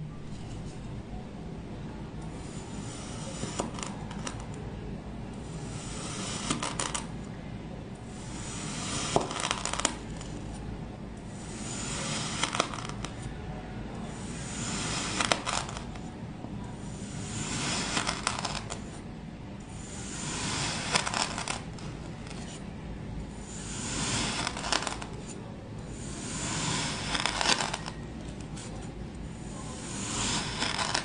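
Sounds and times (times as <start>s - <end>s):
knife slicing kinetic sand: 2.3s - 4.4s, 5.5s - 7.1s, 8.1s - 10.3s, 11.3s - 13.3s, 14.1s - 16.1s, 16.8s - 18.9s, 19.7s - 22.4s, 23.4s - 28.7s, 29.4s - 31.0s.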